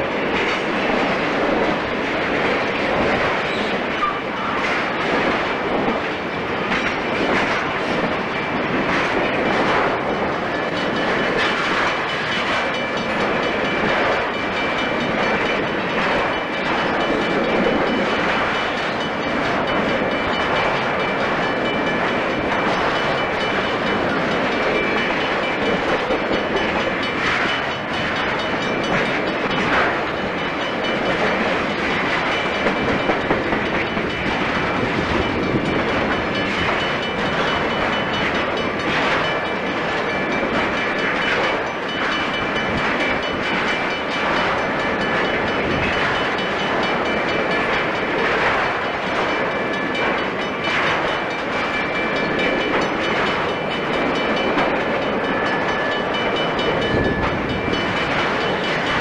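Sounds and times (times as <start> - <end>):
wheels clacking over rail joints: 0.0 - 59.0
wheels rumbling on rail: 0.0 - 59.0.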